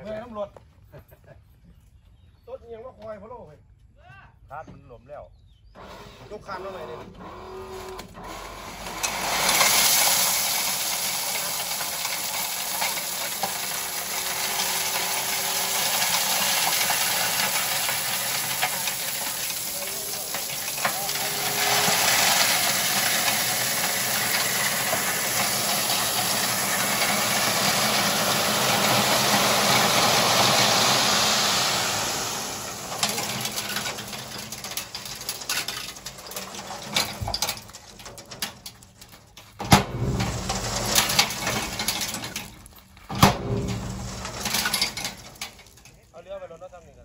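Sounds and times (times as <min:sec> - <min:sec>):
gravel sliding out of truck bed: 0:08.2 - 0:46.6
truck engine running: 0:14.1 - 0:35.4, 0:39.6 - 0:46.0.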